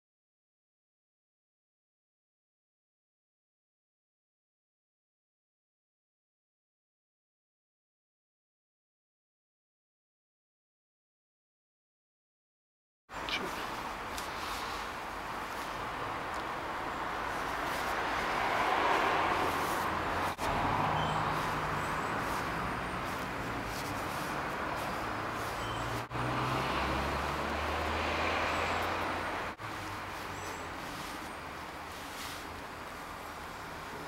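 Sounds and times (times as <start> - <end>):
road traffic passing: 13.1 - 34.0.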